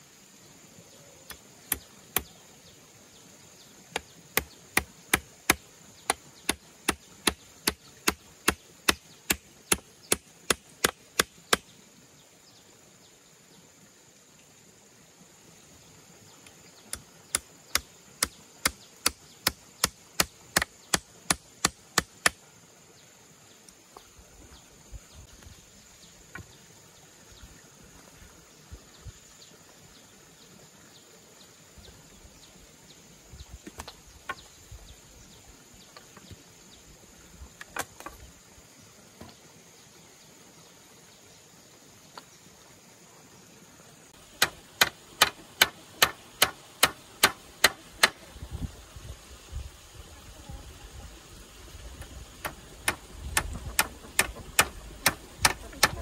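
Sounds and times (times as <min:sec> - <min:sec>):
hammer nailing wood: 0:44.4 - 0:48.2, 0:52.4 - 0:56.0
wooden poles knocking and clattering: 0:52.4 - 0:56.0.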